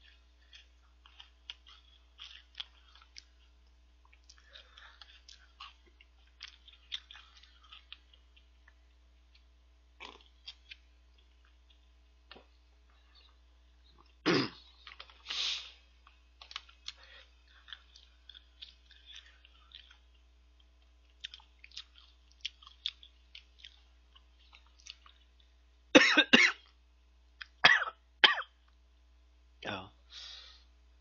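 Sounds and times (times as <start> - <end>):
man chewing crunchy snack: 0.0 - 25.6
man coughing: 14.2 - 14.6, 26.0 - 26.6, 27.6 - 28.5.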